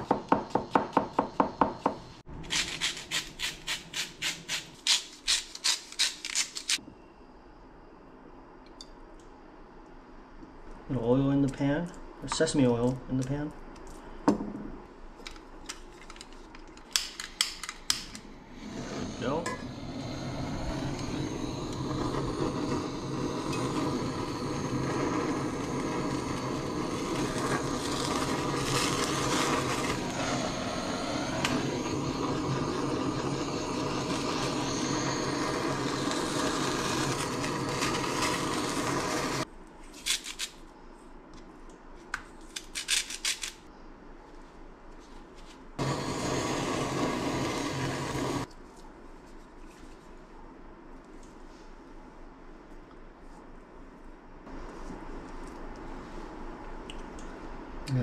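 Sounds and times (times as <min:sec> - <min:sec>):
blowtorch hissing: 0:18.3 - 0:39.5, 0:45.8 - 0:48.5.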